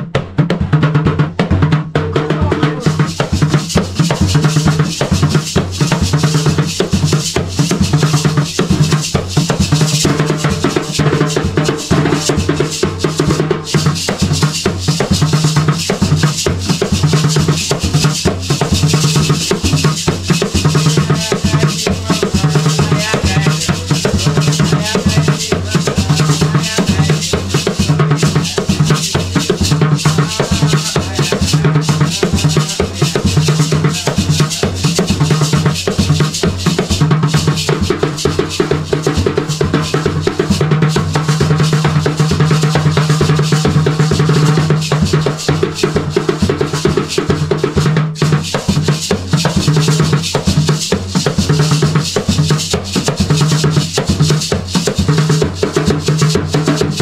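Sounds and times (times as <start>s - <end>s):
hand drums playing rhythm: 0.0s - 57.0s.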